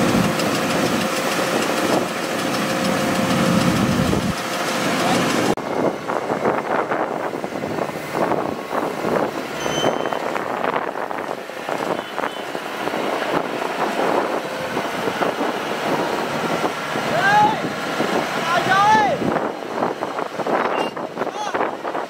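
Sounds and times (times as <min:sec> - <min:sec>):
combine harvester running: 0:00.0 - 0:22.0
wind on microphone: 0:05.5 - 0:22.0.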